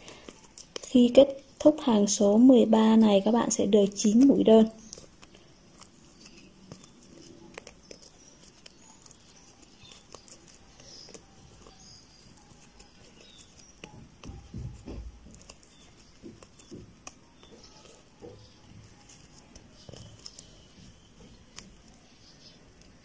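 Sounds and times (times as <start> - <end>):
crochet hook rustling and clicking: 0.0 - 1.0, 3.8 - 22.0
soft thumps: 13.8 - 19.0.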